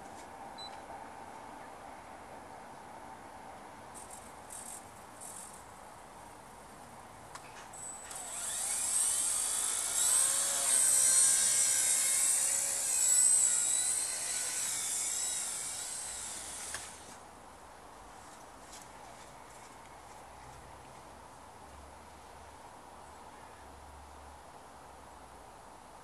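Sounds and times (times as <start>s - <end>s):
rc helicopter rotor whine: 7.8s - 17.2s.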